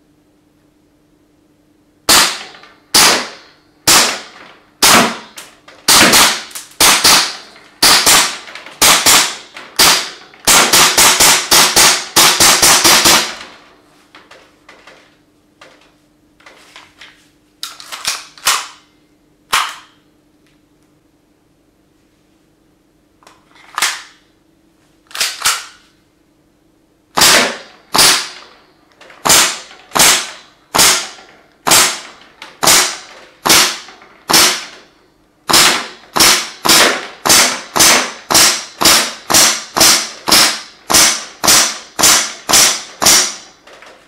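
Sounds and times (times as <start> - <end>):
airsoft pistol shots: 2.1 - 13.6, 27.2 - 28.6, 29.2 - 34.8, 35.5 - 43.6
pistol clicks: 19.5 - 20.0, 25.1 - 25.8.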